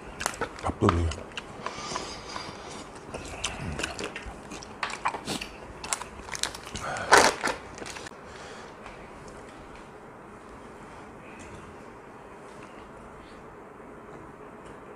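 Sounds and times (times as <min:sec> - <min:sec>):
chewing: 0:00.1 - 0:08.1.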